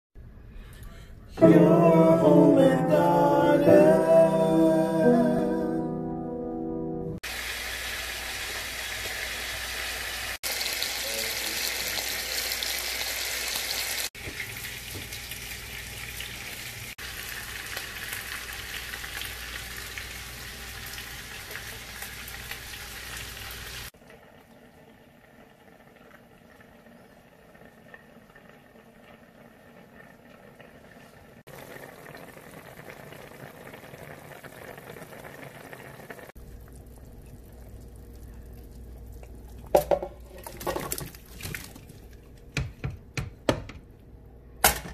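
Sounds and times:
chicken sizzling in oil: 7.2s - 38.8s
soup bubbling: 23.8s - 43.1s.

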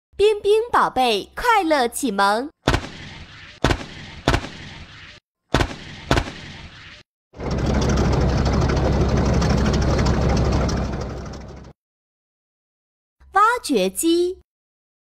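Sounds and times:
sharp bangs: 2.6s - 9.2s.

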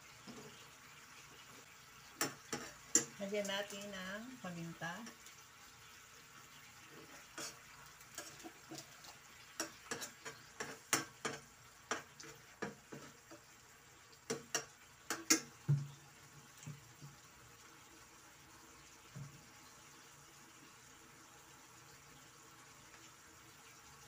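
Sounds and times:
faint sizzle: 0.0s - 24.0s
spatula scraping a frying pan: 2.2s - 3.2s, 6.8s - 13.5s.

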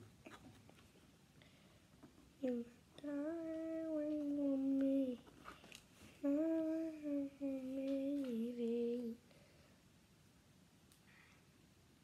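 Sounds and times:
girl singing held notes: 2.4s - 9.4s.

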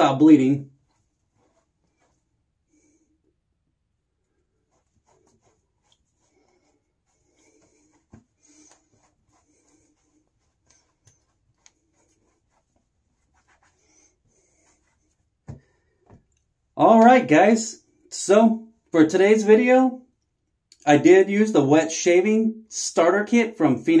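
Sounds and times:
towel rubbing skin: 0.4s - 3.1s, 4.2s - 16.3s.

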